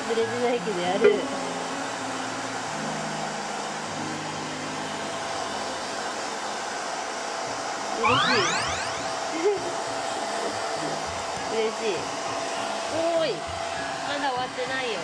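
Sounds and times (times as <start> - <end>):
hair dryer blowing: 0.0 - 15.0
rising whistle: 8.0 - 9.2.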